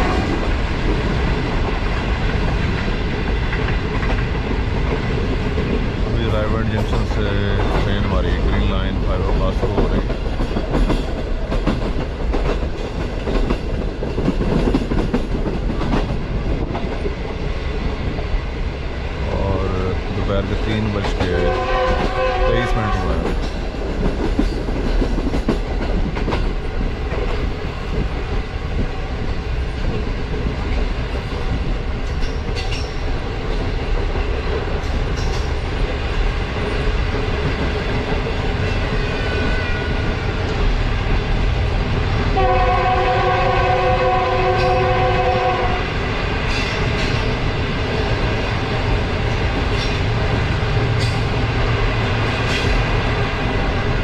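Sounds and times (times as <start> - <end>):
train horn: 0.0 - 0.4, 21.3 - 23.3, 42.4 - 46.0
train running on rails: 0.0 - 54.0.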